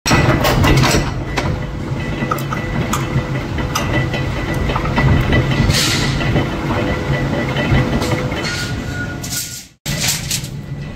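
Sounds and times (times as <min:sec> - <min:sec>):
forging press rumble and hum: 0:00.1 - 0:10.9.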